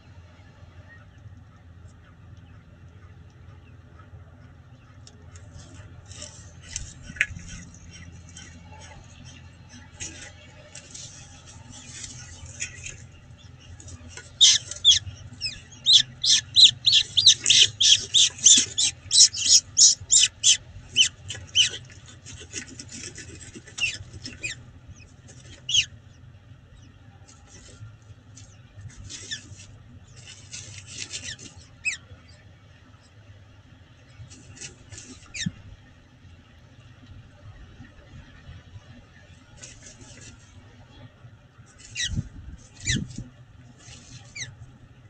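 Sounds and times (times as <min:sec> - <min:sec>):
faint low hum: 0:00.0 - 0:45.0
falcon calling: 0:11.2 - 0:21.9, 0:25.6 - 0:26.0.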